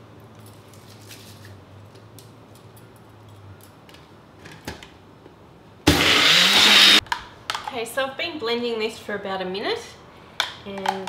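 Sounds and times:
blender motor running: 0:05.9 - 0:07.0.

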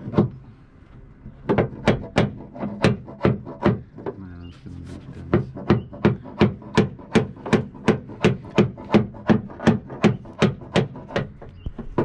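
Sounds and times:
pounding on sheet metal: 0:01.4 - 0:04.2, 0:05.3 - 0:12.0.

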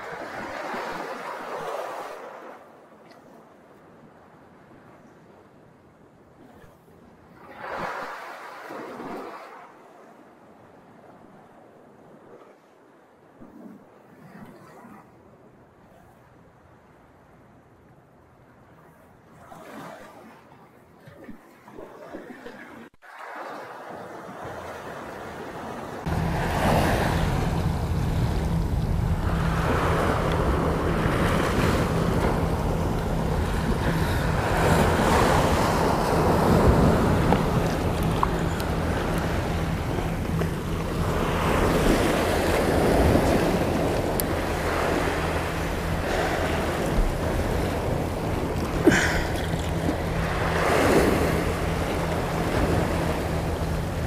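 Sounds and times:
sea waves washing against rocks: 0:00.0 - 0:02.7, 0:21.0 - 0:54.0
wind rumbling on microphone: 0:23.9 - 0:54.0.

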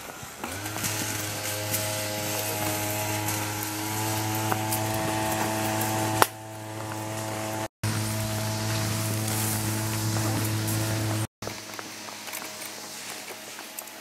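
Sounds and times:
held chord over low drone: 0:01.3 - 0:11.3.

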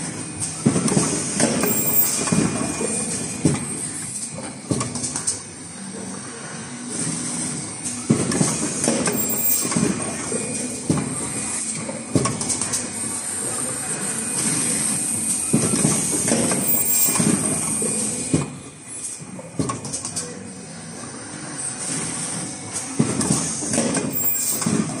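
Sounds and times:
machine knocks and clatter: 0:00.4 - 0:05.4, 0:07.9 - 0:13.0, 0:19.2 - 0:20.3, 0:22.8 - 0:25.0.

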